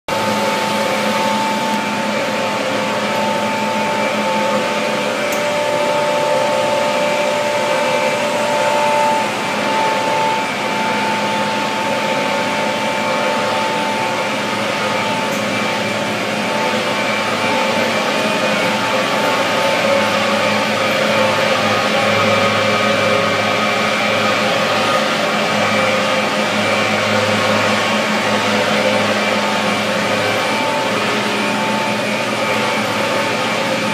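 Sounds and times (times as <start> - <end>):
industrial chillers droning: 0.1 - 33.9.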